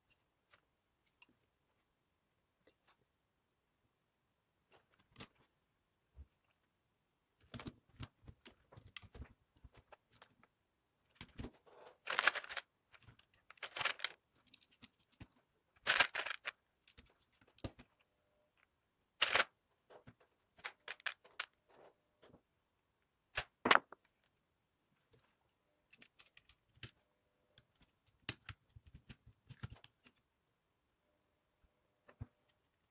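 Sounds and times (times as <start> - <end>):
plastic parts clicking and rattling: 7.4 - 18.0, 19.2 - 22.3, 25.8 - 27.0, 27.6 - 30.2
plastic parts clattering: 11.1 - 18.0, 19.2 - 22.3.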